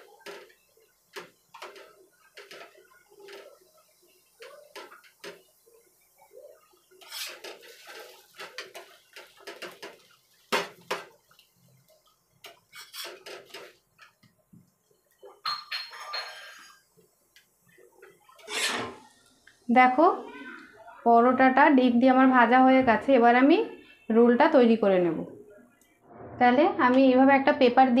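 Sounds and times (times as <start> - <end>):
metal spatula scraping a pan: 7.0 - 10.0, 12.7 - 13.7, 15.9 - 16.9, 18.4 - 19.2.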